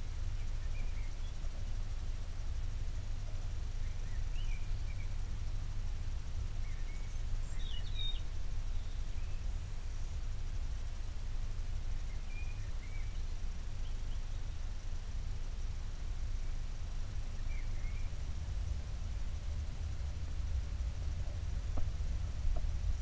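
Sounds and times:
steady low rumble: 14.5s - 23.0s.

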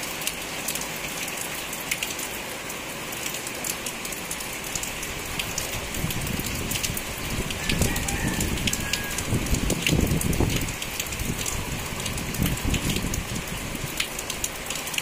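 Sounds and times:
heavy rain on leaves: 0.0s - 15.0s
wind buffeting microphone: 5.8s - 13.9s.

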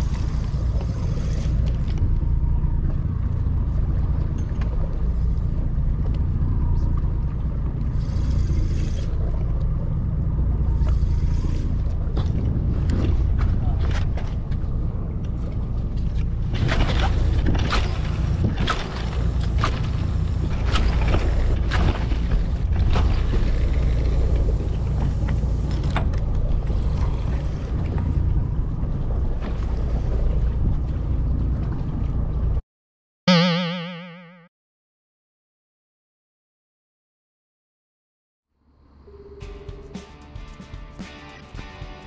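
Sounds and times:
boat engine rumble: 0.0s - 32.6s
wind: 0.0s - 32.6s.

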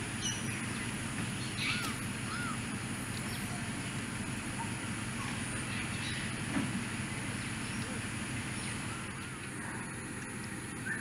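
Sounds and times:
bird chirps: 0.2s - 2.6s, 4.5s - 6.4s, 10.8s - 11.0s.

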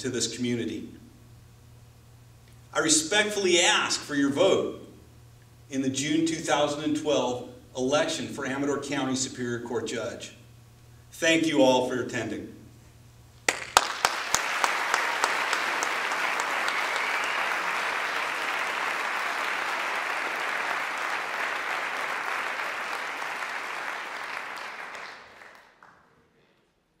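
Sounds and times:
audience applauding: 13.5s - 26.1s.

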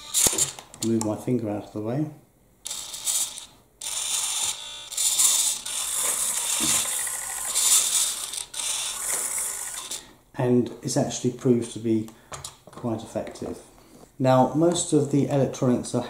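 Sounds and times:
steering servo whirring: 4.0s - 10.0s.

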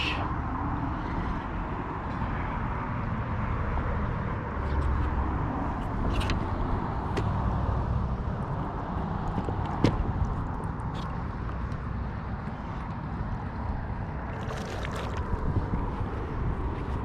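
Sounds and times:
wind buffeting microphone: 3.9s - 17.0s.

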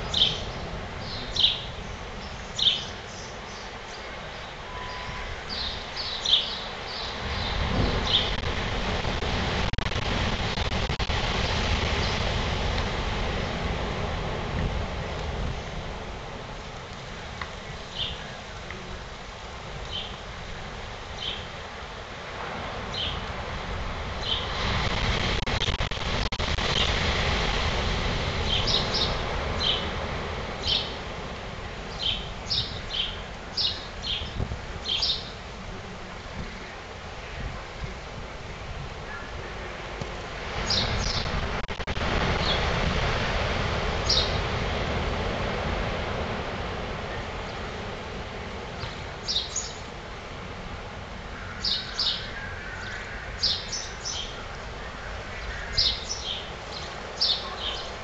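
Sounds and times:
ocean surf breaking: 0.0s - 58.0s
wind: 0.0s - 58.0s
high bird chirps: 4.7s - 7.2s.

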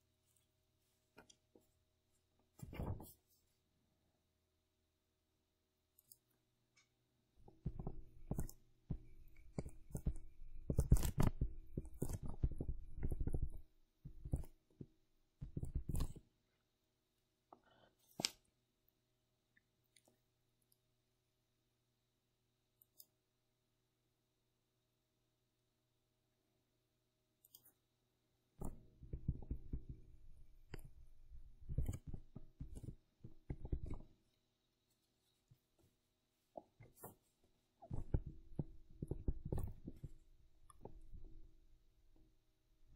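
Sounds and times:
stylus tapping on pen tablet: 7.4s - 16.2s, 28.6s - 34.1s, 37.8s - 41.3s.

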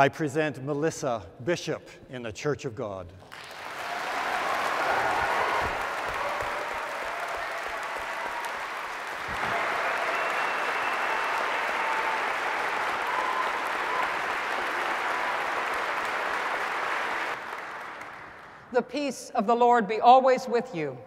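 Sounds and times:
crowd applauding: 3.2s - 18.7s.

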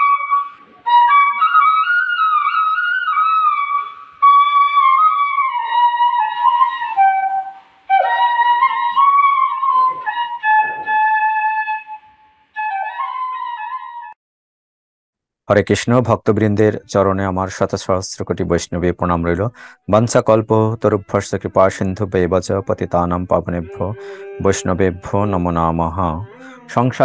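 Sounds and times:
solo flute slow melody: 0.0s - 14.2s, 20.4s - 27.0s.

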